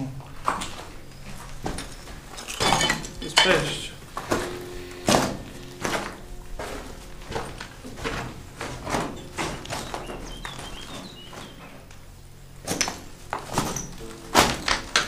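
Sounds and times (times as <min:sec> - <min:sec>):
footsteps walking: 0:04.0 - 0:12.0.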